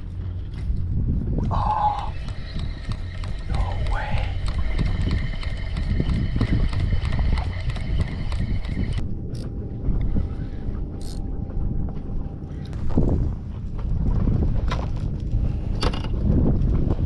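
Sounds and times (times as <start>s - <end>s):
steady high whine: 0.0s - 16.5s
wind rumbling on microphone: 0.0s - 17.0s
spinning reel cranking: 1.8s - 9.0s.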